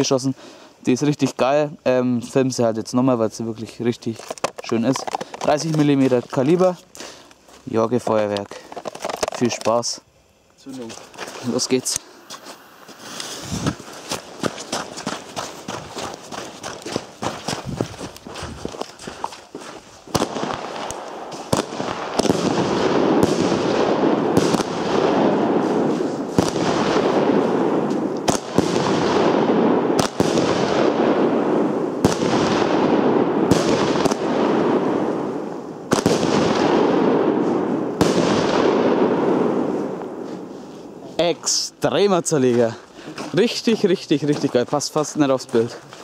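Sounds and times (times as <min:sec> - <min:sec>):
firework shells cracking: 0:04.0 - 0:07.4, 0:08.0 - 0:09.9, 0:20.0 - 0:31.2, 0:35.8 - 0:40.1
hissing crackle of fireworks: 0:10.7 - 0:46.0.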